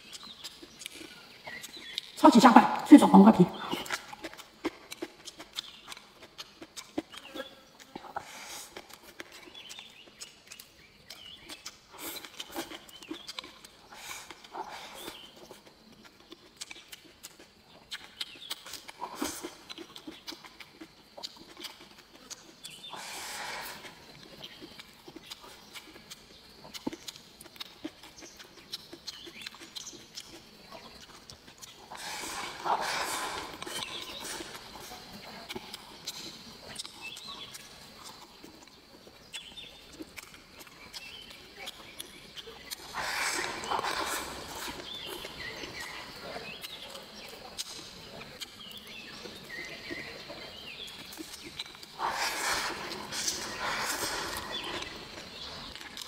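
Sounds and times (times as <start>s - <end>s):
birds chirping: 0.0s - 4.2s, 22.3s - 27.1s, 27.8s - 35.1s, 35.7s - 56.0s
wet chewing mouth clicks: 0.0s - 56.0s.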